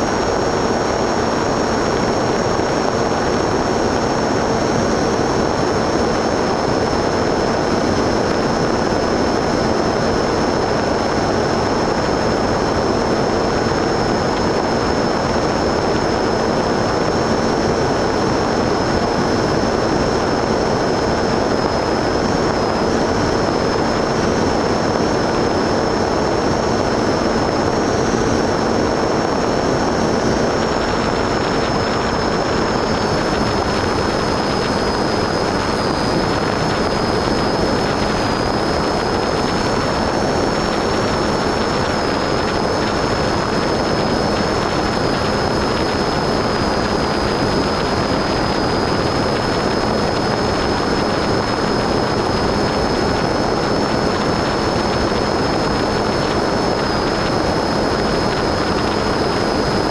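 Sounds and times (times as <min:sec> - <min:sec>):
high motor whine: 0:00.0 - 0:59.9
wind and propeller rush: 0:00.0 - 0:59.9.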